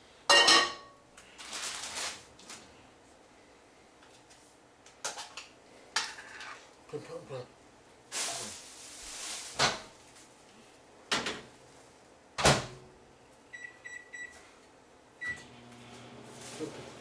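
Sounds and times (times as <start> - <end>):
microwave start beep: 13.5 - 14.4, 15.2 - 15.7
microwave humming: 15.2 - 17.0.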